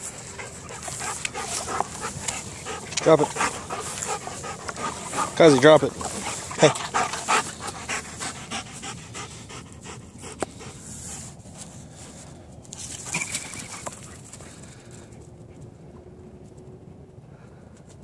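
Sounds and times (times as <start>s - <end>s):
dog panting: 0.0s - 11.4s.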